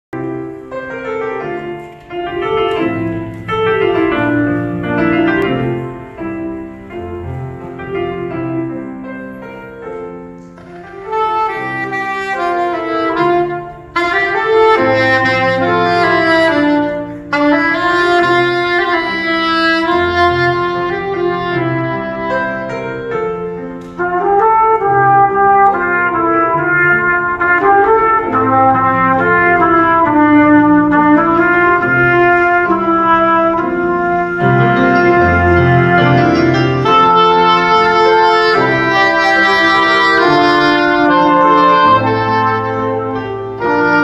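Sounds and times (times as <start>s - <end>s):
piano accompaniment: 0.1s - 44.0s
soprano saxophone hymn melody: 9.3s - 44.0s.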